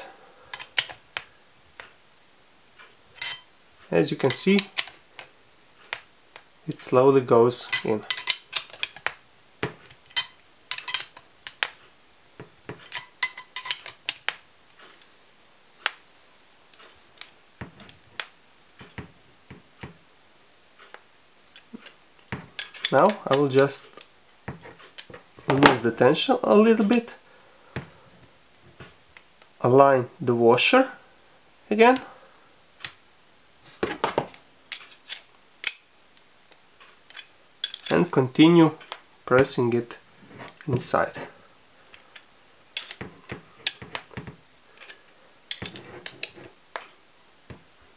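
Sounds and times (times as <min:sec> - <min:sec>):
metal washers and bolt clinking: 0:00.0 - 0:01.9, 0:03.1 - 0:05.3, 0:07.5 - 0:11.8, 0:12.6 - 0:15.1, 0:20.8 - 0:26.0, 0:33.8 - 0:35.9, 0:36.8 - 0:38.2, 0:41.9 - 0:47.6
sharp metallic clicks and clinks: 0:03.2 - 0:03.5, 0:10.1 - 0:11.7, 0:12.8 - 0:14.4.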